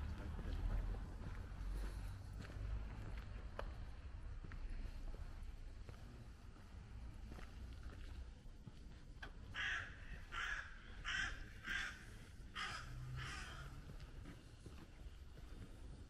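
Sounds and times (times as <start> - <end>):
crow cawing: 9.5 - 13.9.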